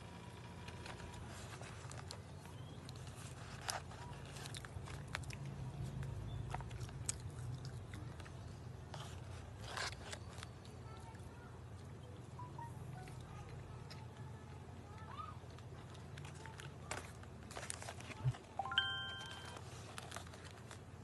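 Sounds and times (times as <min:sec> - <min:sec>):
person chewing crunchy food: 0:01.2 - 0:10.6.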